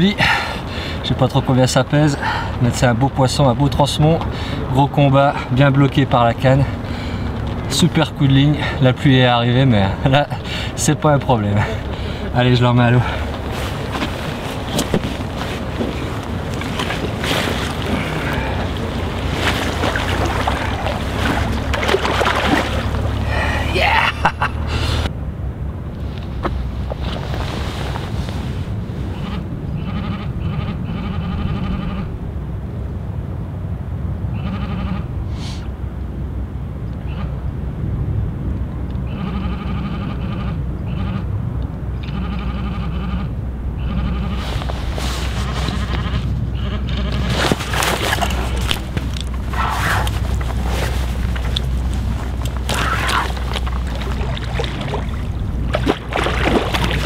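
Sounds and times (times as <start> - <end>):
wind rumble on microphone: 5.9 - 57.0
water splashing and sloshing: 10.0 - 25.1, 44.3 - 57.0
frogs calling in rattling pulses: 39.1 - 41.3, 42.0 - 44.4.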